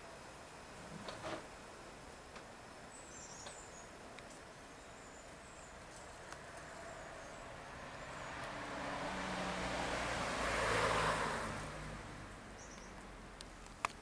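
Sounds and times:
car passing by: 0:06.4 - 0:13.3.

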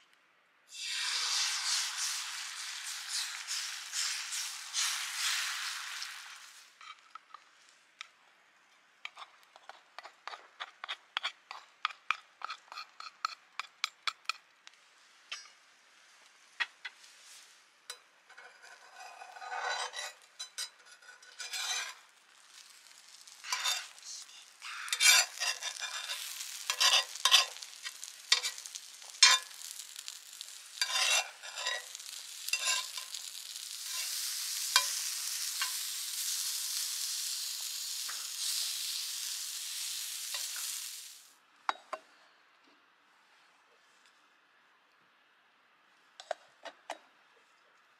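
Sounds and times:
egg frying on griddle: 0:00.7 - 0:08.2, 0:09.0 - 0:14.4, 0:17.9 - 0:41.8
metal spatula scraping iron: 0:18.3 - 0:22.0, 0:23.4 - 0:24.0, 0:24.6 - 0:35.0.

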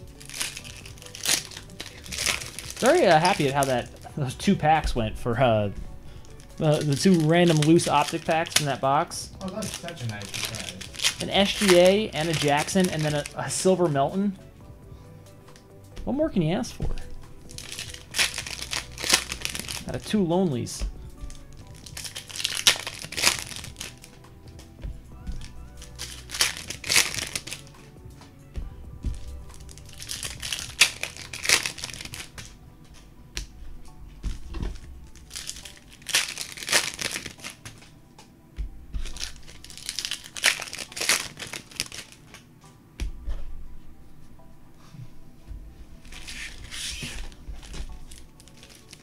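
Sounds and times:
plastic wrappers crinkling and tearing: 0:00.0 - 0:04.8, 0:06.2 - 0:14.1, 0:17.0 - 0:27.9, 0:29.1 - 0:32.6, 0:34.4 - 0:37.9, 0:39.0 - 0:42.5, 0:46.0 - 0:49.0
soft background music: 0:00.0 - 0:49.0.

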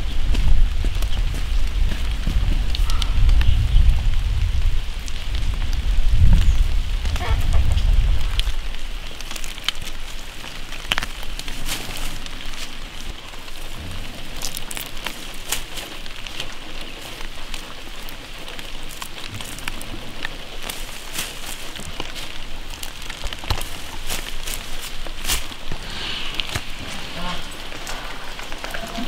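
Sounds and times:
leaves rustling and stems snapping: 0:05.0 - 0:29.0
low rumble: 0:25.3 - 0:29.0.

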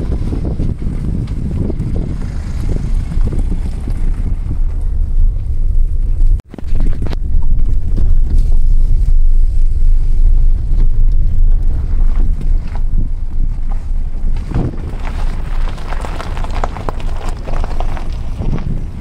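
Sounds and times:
car rumbling on dirt road: 0:00.0 - 0:19.0
wind rushing over microphone: 0:00.0 - 0:19.0.

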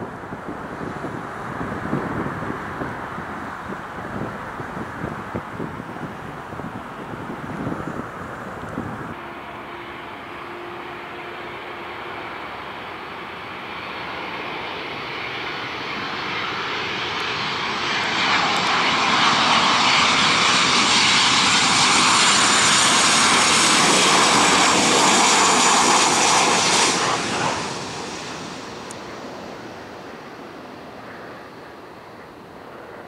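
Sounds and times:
jet airliner passing close: 0:00.0 - 0:33.0.

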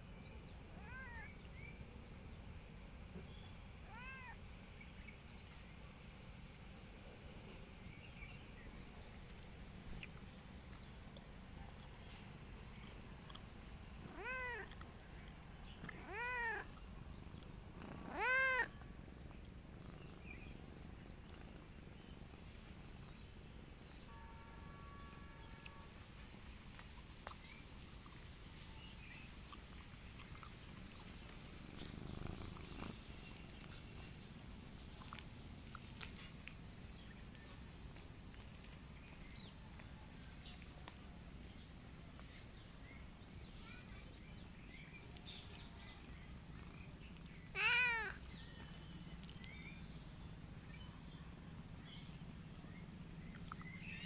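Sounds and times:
insects droning: 0:00.0 - 0:54.0
cat meowing: 0:00.8 - 0:01.3, 0:03.9 - 0:04.4, 0:14.1 - 0:14.7, 0:15.9 - 0:16.7, 0:17.8 - 0:18.7, 0:47.5 - 0:48.2.

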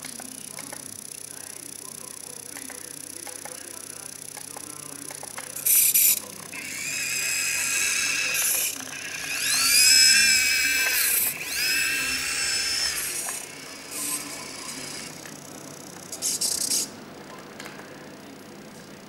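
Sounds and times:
toy electric motor whining: 0:05.0 - 0:16.9.

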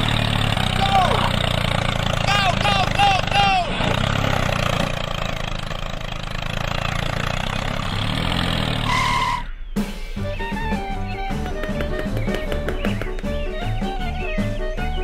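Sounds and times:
tractor engine running: 0:00.0 - 0:15.0.

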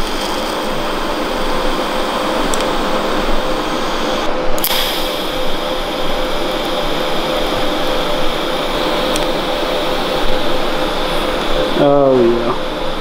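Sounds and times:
welding arc hiss and whine: 0:00.0 - 0:13.0.

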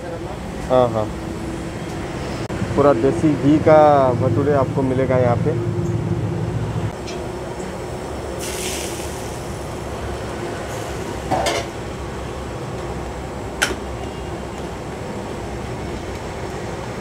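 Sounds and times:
steady background hum: 0:00.0 - 0:15.8
brief hiss: 0:08.4 - 0:09.5.

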